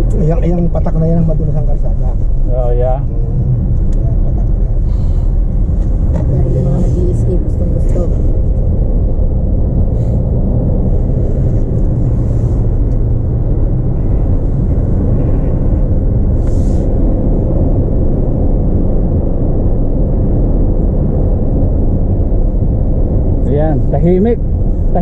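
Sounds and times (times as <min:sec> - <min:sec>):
car cabin road rumble: 0:00.0 - 0:25.0
faint constant hum: 0:00.0 - 0:25.0.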